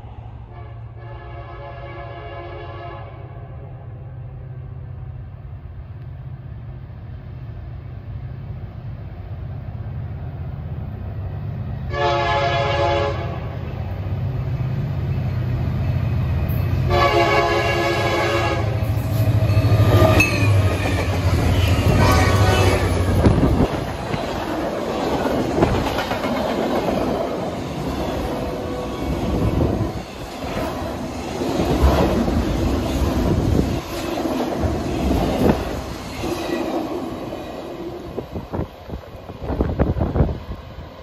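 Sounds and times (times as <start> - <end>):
diesel locomotive engine rumble: 0.0 - 41.0
locomotive horn blasts: 0.5 - 3.4, 11.9 - 13.6, 16.9 - 18.9, 21.6 - 23.1
train wheel clatter: 18.9 - 28.2.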